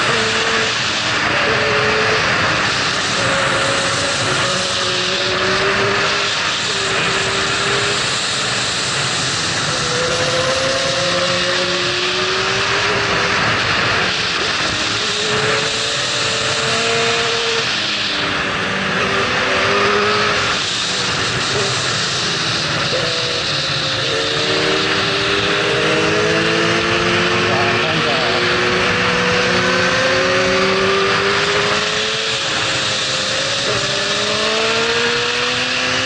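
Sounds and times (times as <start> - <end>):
motorcycle engine revving high: 0.0 - 36.0.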